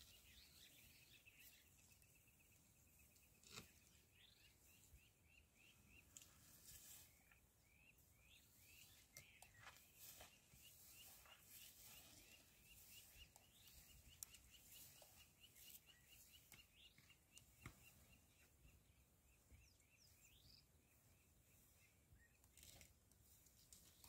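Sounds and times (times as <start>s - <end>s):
bird chirping: 0.0s - 22.8s.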